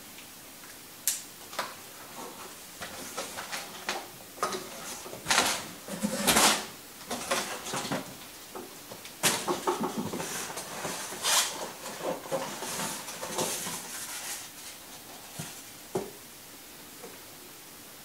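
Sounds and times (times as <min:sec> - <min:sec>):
cardboard boxes scraping and knocking: 0:09.2 - 0:15.7.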